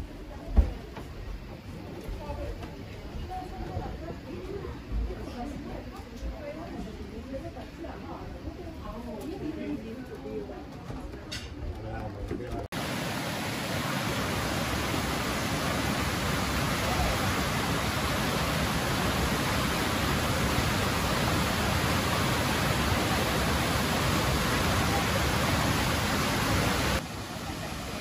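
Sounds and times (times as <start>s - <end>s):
river water rushing: 12.8s - 28.0s.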